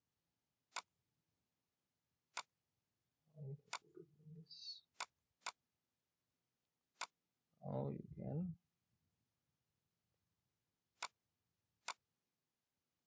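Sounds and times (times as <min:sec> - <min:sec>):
faint low murmur: 0:07.6 - 0:08.6.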